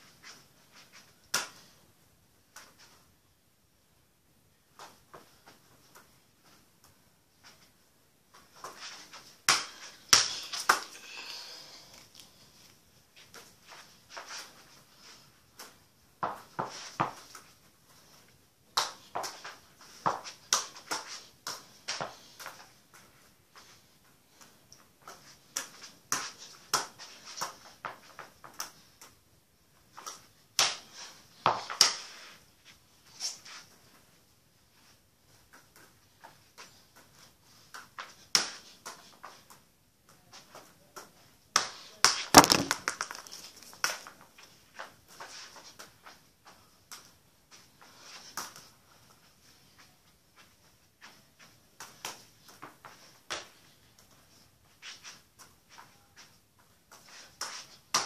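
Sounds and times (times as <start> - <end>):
ball bouncing on stone floor: 41.0 - 44.2
football taps off feet and knees: 42.1 - 44.0.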